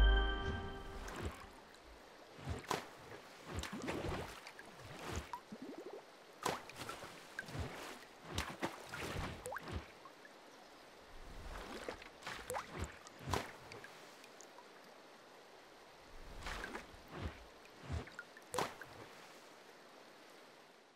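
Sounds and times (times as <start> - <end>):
water drips and plops: 3.5 - 10.3, 11.5 - 14.7.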